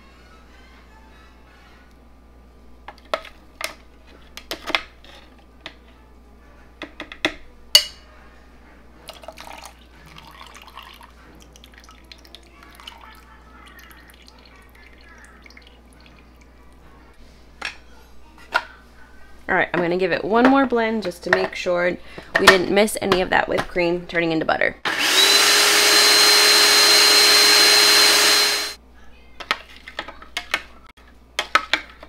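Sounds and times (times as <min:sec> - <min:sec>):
buttermilk trickling and dripping: 0:09.0 - 0:16.8.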